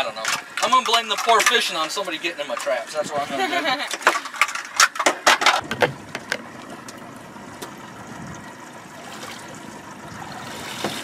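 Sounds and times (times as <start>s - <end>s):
water washing: 5.6s - 11.0s.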